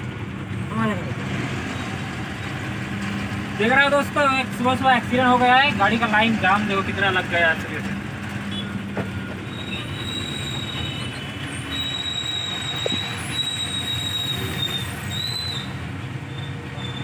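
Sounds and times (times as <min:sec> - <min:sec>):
truck engine and road rumble: 0:00.0 - 0:17.0
high thin squeal: 0:09.5 - 0:15.7.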